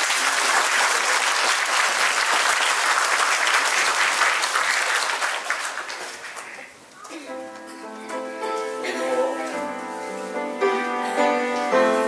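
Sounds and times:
congregation applauding: 0:00.0 - 0:07.2.

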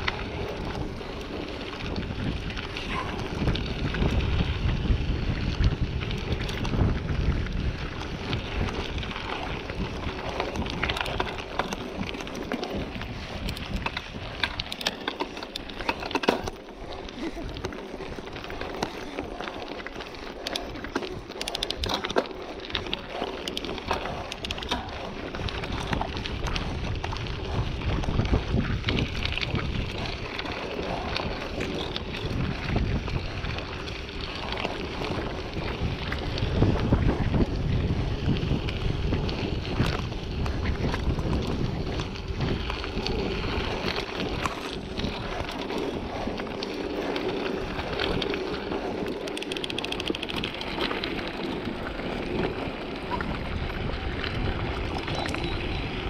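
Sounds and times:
bike tyre noise: 0:00.0 - 0:56.0
wind buffeting microphone: 0:00.0 - 0:56.0.

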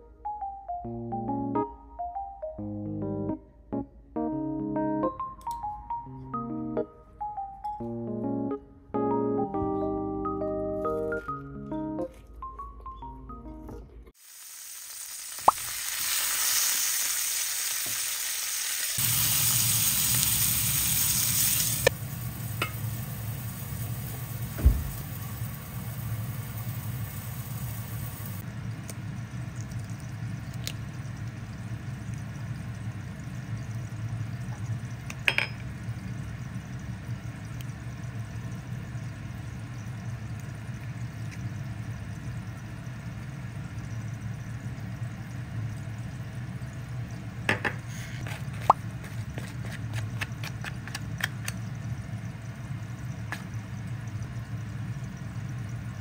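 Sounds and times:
food sizzling in a frying pan: 0:14.2 - 0:47.1
steady low hum: 0:19.0 - 0:56.0
dull knock: 0:24.6 - 0:24.9.

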